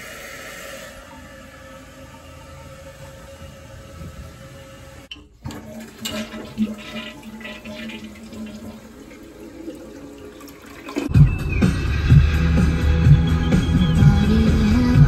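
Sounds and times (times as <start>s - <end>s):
toilet flushing: 0.0s - 11.2s
music: 11.1s - 15.0s.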